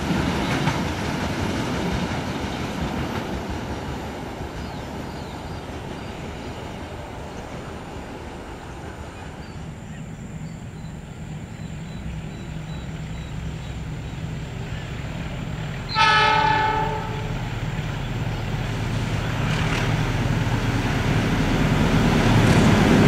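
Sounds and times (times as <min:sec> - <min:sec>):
train rumbling on rails: 0:00.0 - 0:23.0
train horn blast: 0:15.9 - 0:17.5.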